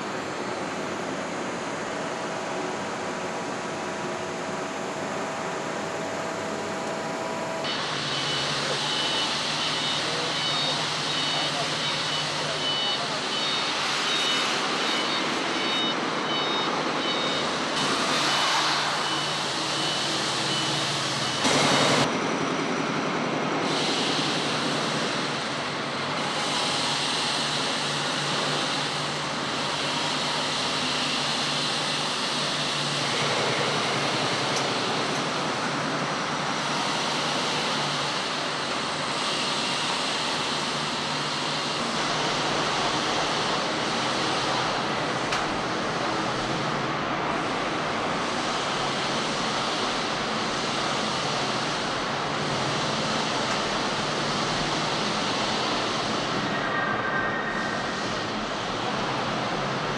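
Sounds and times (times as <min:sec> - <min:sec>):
hum and hiss of warehouse machinery: 0:00.0 - 0:59.9
forklift warning beeps: 0:07.7 - 0:17.7, 0:19.0 - 0:21.5
loud burst of noise: 0:16.9 - 0:59.9.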